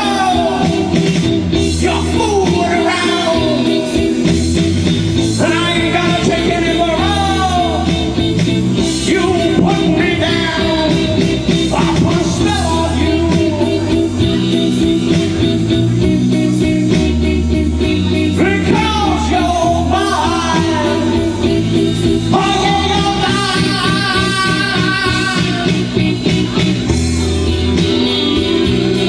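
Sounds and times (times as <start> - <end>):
man singing into a microphone: 0.0 - 4.2, 5.2 - 8.2, 8.8 - 14.6, 16.2 - 26.0
amplified instrumental backing music: 0.0 - 29.0.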